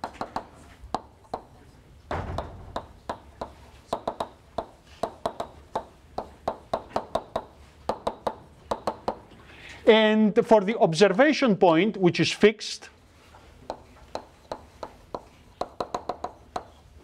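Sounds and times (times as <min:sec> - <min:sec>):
chalk tapping on blackboard: 0:00.0 - 0:01.5, 0:02.4 - 0:09.2, 0:13.6 - 0:16.8.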